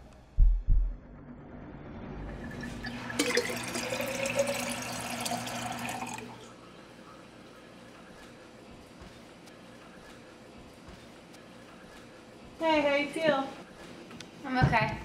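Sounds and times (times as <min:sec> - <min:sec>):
water filling a glass: 0:02.4 - 0:06.6.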